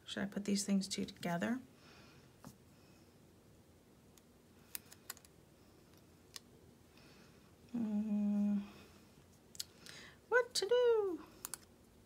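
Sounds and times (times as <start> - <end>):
woman humming: 7.7 - 8.9.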